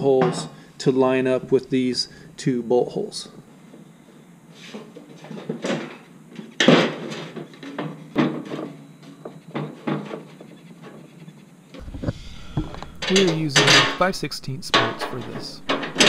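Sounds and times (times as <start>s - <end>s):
wagon tub knocking and scraping: 15.6s - 16.0s.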